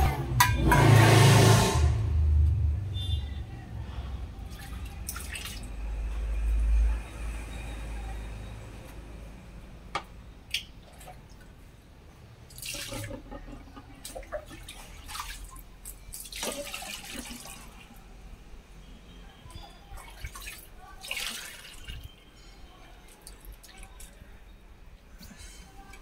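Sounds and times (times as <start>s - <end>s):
steel vessels clinking: 0.3s - 1.2s
water pouring and splashing: 4.4s - 6.1s, 12.5s - 13.4s, 14.0s - 18.0s, 19.8s - 24.2s.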